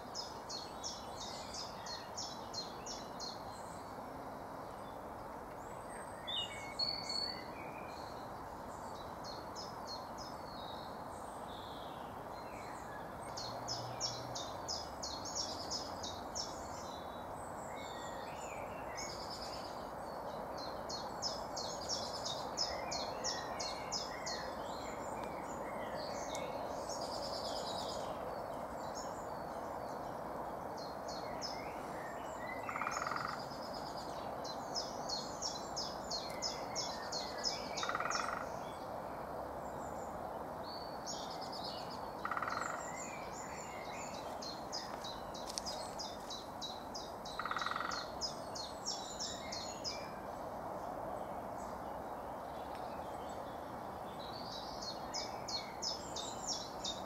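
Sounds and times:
songbirds singing: 0.0 - 57.0
steady background hiss: 0.0 - 57.0
distant woodpecker drumming: 37.8 - 38.4, 42.2 - 42.8, 47.4 - 48.1.

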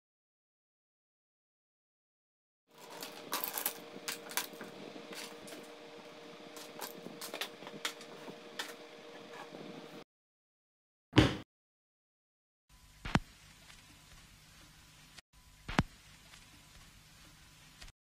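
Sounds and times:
steady hum: 2.7 - 10.0.

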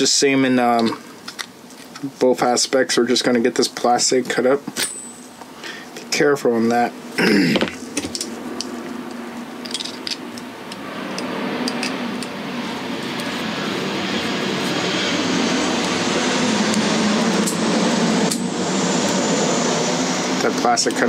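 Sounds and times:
rushing air noise: 7.2 - 21.0.

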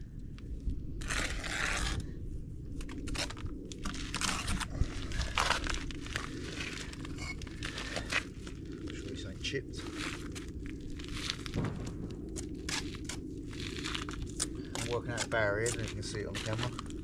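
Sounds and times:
trowel scraping mortar: 1.0 - 2.0, 14.4 - 16.9.

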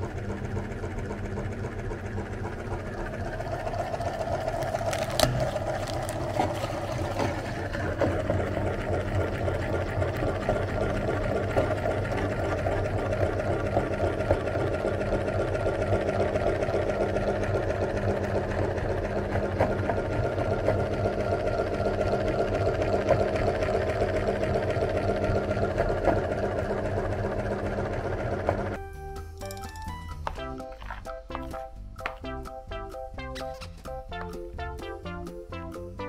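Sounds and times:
electric meat grinder humming: 0.0 - 28.8.

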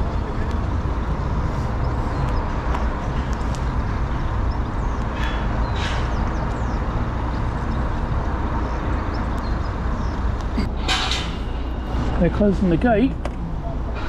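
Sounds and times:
steady low traffic rumble: 0.0 - 14.0
van engine running: 0.0 - 14.0.

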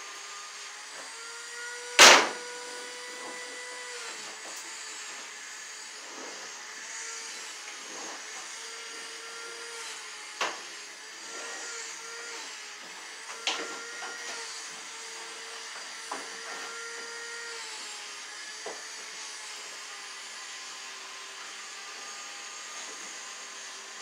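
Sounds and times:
sharp knocks: 2.0 - 2.4.

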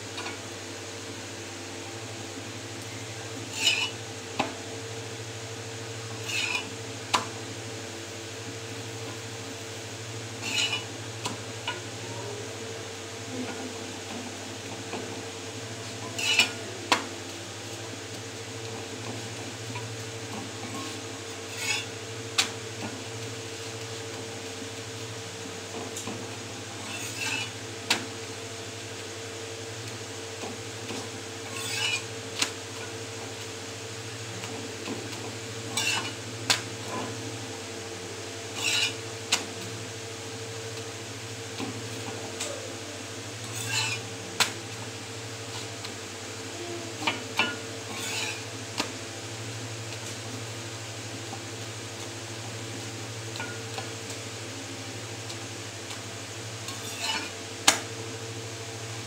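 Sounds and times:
spatula scraping griddle: 3.4 - 4.0, 6.1 - 6.8, 10.3 - 11.9, 15.8 - 16.7, 18.7 - 24.4, 25.9 - 28.2, 30.5 - 33.4, 34.4 - 37.4, 38.5 - 39.6, 41.6 - 45.9, 47.1 - 49.0, 56.2 - 57.8.

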